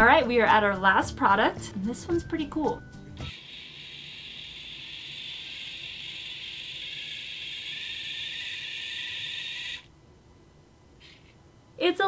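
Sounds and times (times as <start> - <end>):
robot drive motors whirring: 3.3 - 9.9.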